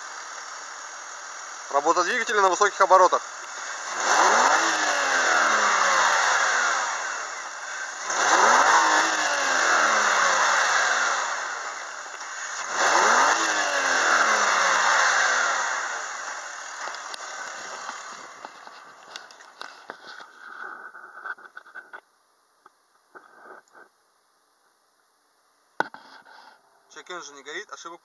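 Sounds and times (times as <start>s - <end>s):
car engine revving: 0.0s - 20.2s.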